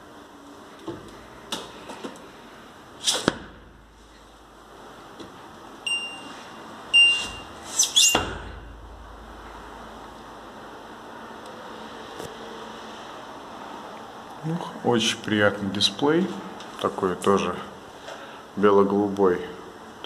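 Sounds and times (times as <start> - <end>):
electronic beeps: 5.9 - 8.2.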